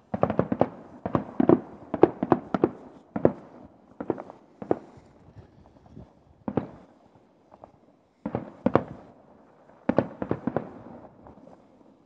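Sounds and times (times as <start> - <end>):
distant fireworks bursting: 0.0 - 12.0.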